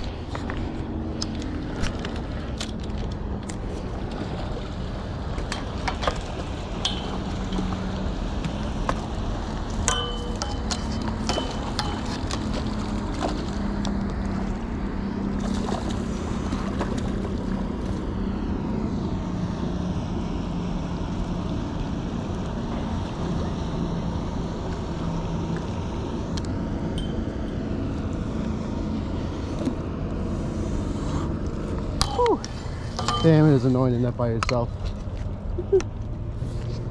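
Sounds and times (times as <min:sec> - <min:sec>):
water lapping at wall: 0:00.0 - 0:18.3
low steady hum: 0:00.0 - 0:36.9.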